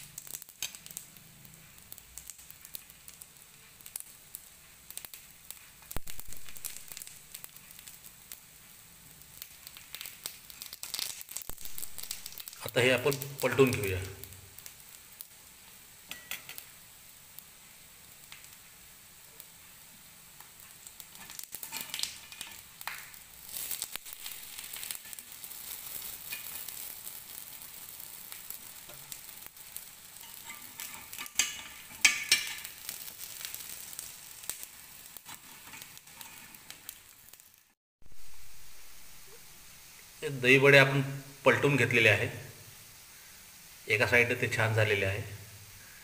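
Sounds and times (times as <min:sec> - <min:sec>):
batter sizzling in oil: 0:00.0 - 0:46.0
metal spoon scraping pan: 0:21.2 - 0:22.6, 0:30.2 - 0:32.7, 0:35.3 - 0:36.6.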